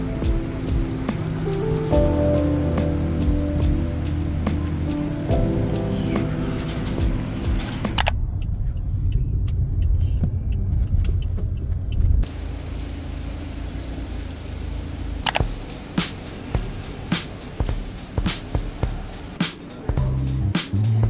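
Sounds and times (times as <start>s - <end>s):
muffled car road noise: 0.0s - 21.0s
street background: 0.0s - 21.0s
sharp clicks: 7.4s - 12.2s, 15.2s - 16.5s.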